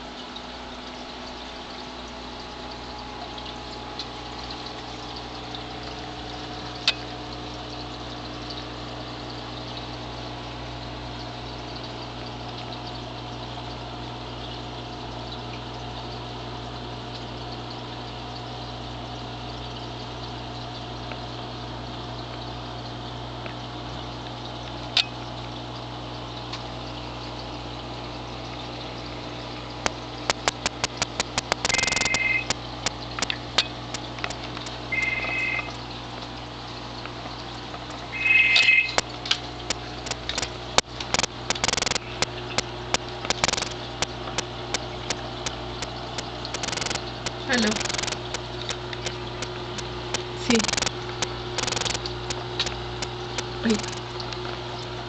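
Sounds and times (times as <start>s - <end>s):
aquarium water bubbling: 0.0s - 55.0s
pump humming: 0.0s - 55.0s
sharp clicks: 29.8s - 35.8s, 38.5s - 54.3s.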